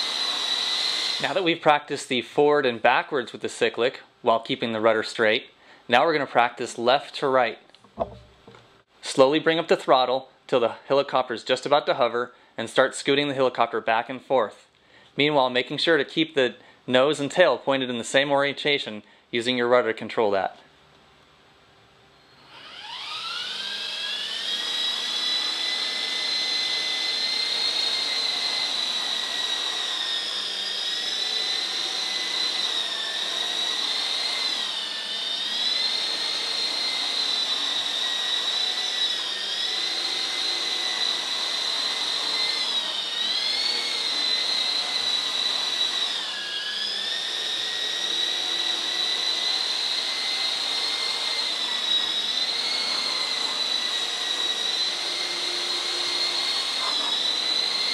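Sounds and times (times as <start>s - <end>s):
toy helicopter motors whining: 0.0s - 1.6s, 22.2s - 57.9s.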